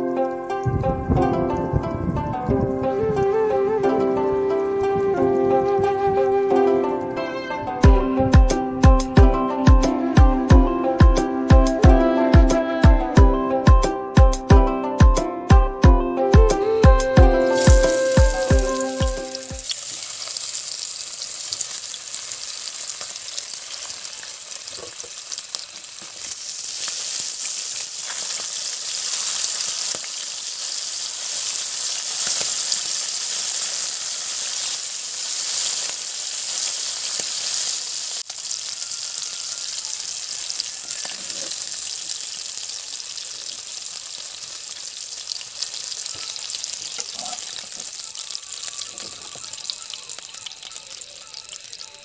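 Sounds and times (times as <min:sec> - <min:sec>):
fish sizzling in oil: 0:17.3 - 0:52.0.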